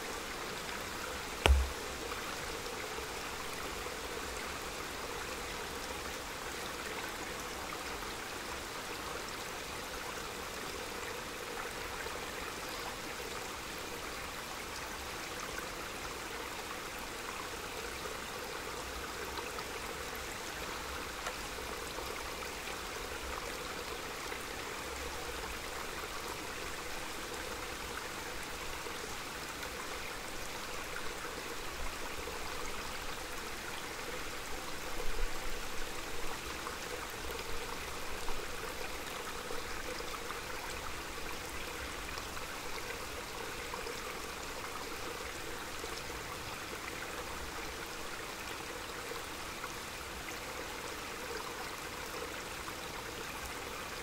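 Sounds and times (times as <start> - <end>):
stream rushing: 1.4 - 1.9.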